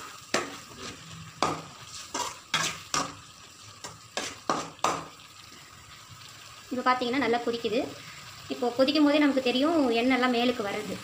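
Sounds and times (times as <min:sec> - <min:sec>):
faint sizzle: 0:00.0 - 0:11.0
spoon scraping metal pot: 0:01.9 - 0:03.1.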